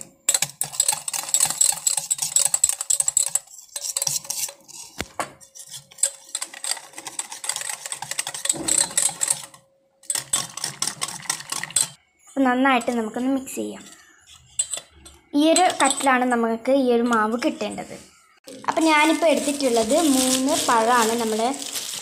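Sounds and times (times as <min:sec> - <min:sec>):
whisk beating batter in steel bowl: 0:00.0 - 0:12.0, 0:13.8 - 0:16.2.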